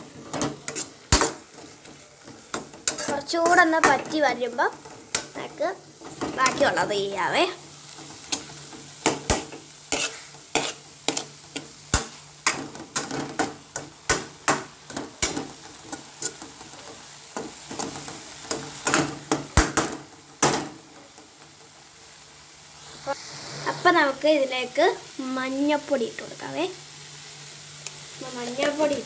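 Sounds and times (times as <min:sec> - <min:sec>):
spoon scraping and knocking pan: 0:00.0 - 0:05.4, 0:08.0 - 0:16.7.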